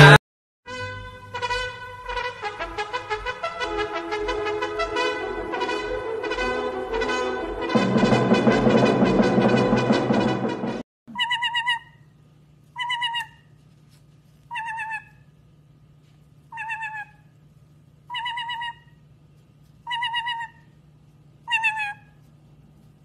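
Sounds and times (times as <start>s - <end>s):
parrot trilled call: 11.1s - 12.1s, 12.8s - 13.5s, 14.5s - 15.3s, 16.5s - 17.3s, 18.1s - 19.0s, 19.8s - 20.7s, 21.4s - 22.2s
faint low hum: 11.1s - 23.0s.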